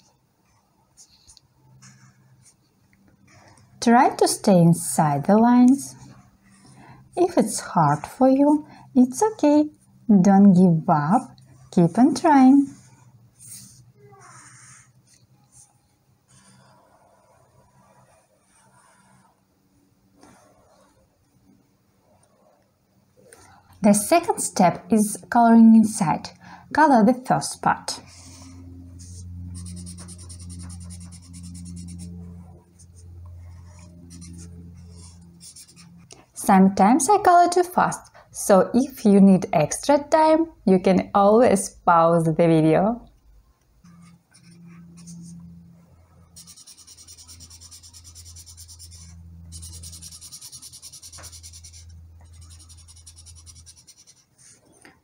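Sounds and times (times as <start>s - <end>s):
steady low hum: 0.0s - 55.0s
marker scribbling on paper: 16.3s - 19.3s, 28.0s - 36.1s, 43.9s - 45.4s, 46.4s - 54.7s.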